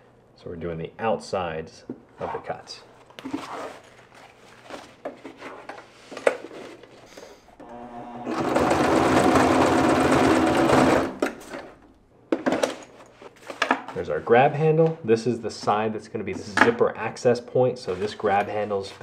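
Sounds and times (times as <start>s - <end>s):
sewing machine stitching: 7.6s - 11.6s.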